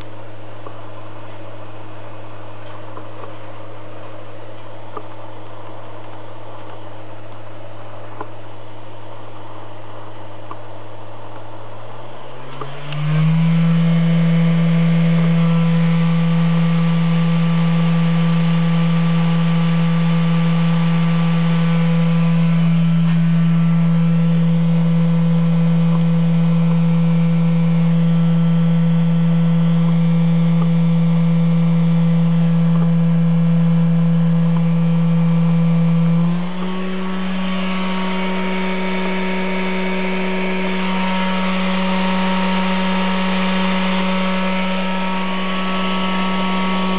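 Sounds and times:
electric motor humming: 11.3s - 46.9s.

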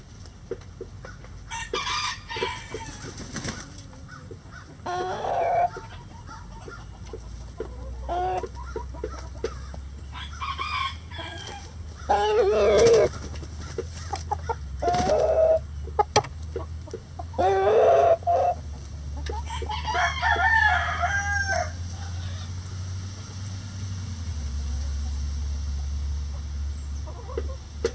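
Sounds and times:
chickens clucking and calling: 0.0s - 23.6s, 24.6s - 27.9s
rooster crowing: 1.5s - 3.2s, 9.6s - 13.1s, 19.4s - 22.5s.

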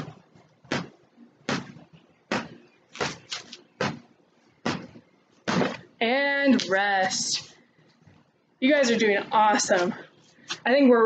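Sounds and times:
volleyball slapping off forearms: 0.0s - 5.8s.

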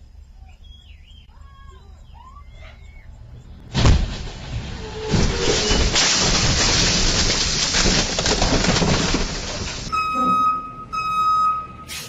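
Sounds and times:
truck reversing alarm beeps: 9.9s - 12.0s.

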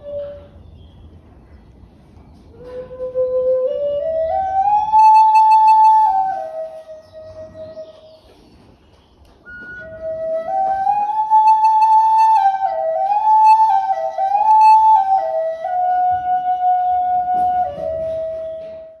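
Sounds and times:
wooden flute melody: 0.0s - 0.9s, 2.5s - 8.2s, 9.4s - 19.0s.

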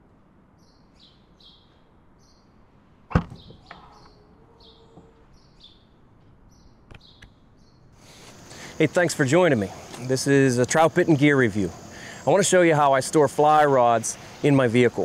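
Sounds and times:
bird chirping: 0.6s - 2.6s, 3.2s - 15.0s
liftgate unlatching clunk: 3.1s - 4.0s.

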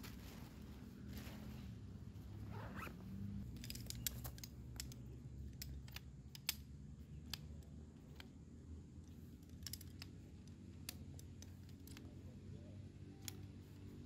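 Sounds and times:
camp chair poles clicking: 2.5s - 8.4s, 9.1s - 12.3s.

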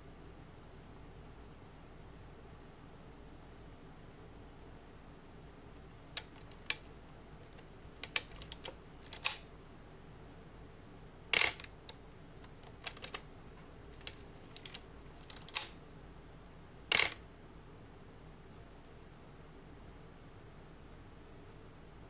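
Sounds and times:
camera shutter clacks: 11.4s - 11.7s, 16.9s - 17.2s.

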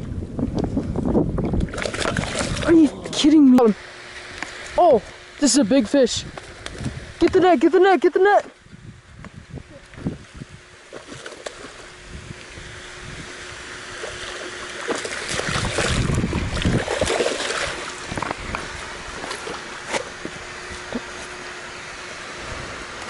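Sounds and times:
fish splashing and thrashing: 1.4s - 3.2s, 10.8s - 12.0s, 13.8s - 21.4s.

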